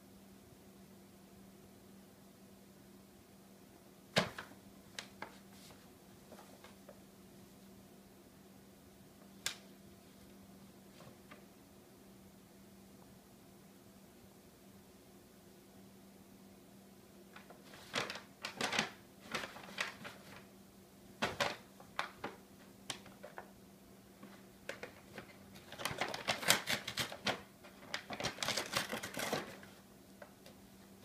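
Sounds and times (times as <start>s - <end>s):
paper bag crackling and rustling: 17.4s - 20.5s, 21.2s - 23.5s, 24.2s - 30.4s.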